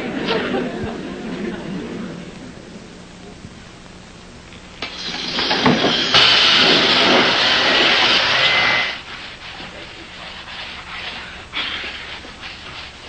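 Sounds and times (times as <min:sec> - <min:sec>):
electric power sander on wood: 0:04.9 - 0:09.0.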